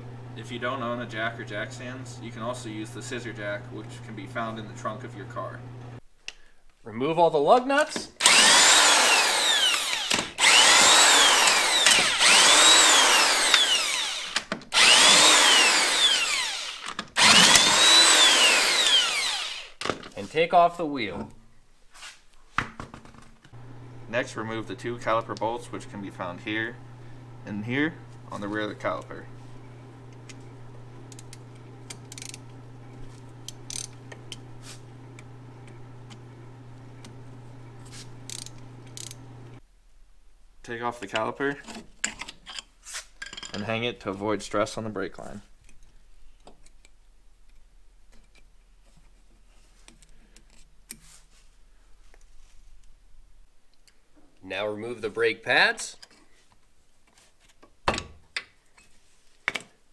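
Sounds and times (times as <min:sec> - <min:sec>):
steady low hum: 0:00.0 - 0:06.0, 0:23.6 - 0:39.6
impact wrench motor whine: 0:08.2 - 0:19.8
ratchet wrench clicking: 0:31.9 - 0:32.4, 0:33.5 - 0:34.4, 0:38.3 - 0:39.2.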